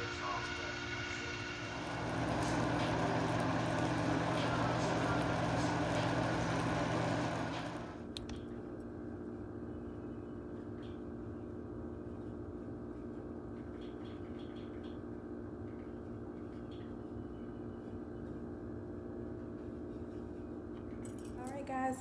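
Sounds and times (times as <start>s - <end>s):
steady hum: 0.0s - 10.4s
sharp clicks: 8.1s - 8.4s.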